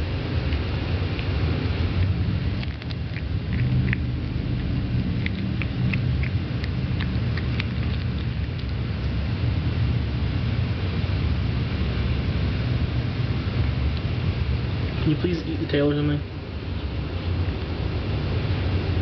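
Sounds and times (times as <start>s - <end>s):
low rumble: 0.0s - 15.3s
cat crunching bones: 0.4s - 9.4s.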